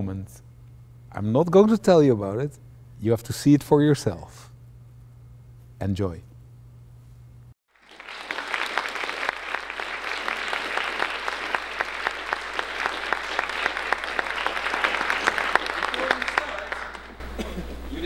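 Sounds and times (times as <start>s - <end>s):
audience applauding: 7.7s - 18.0s.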